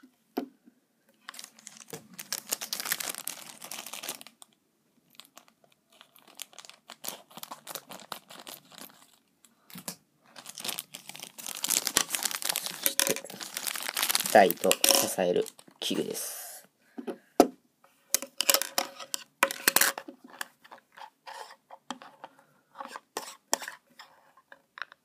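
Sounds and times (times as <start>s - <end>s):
plastic packaging crinkling: 1.2s - 4.5s, 5.1s - 16.1s, 18.2s - 20.4s.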